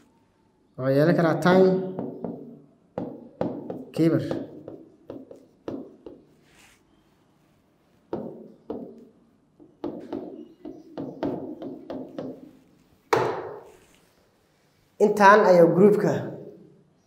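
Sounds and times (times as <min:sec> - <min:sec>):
marker tapping on whiteboard: 0:01.9 - 0:06.4, 0:08.1 - 0:13.7.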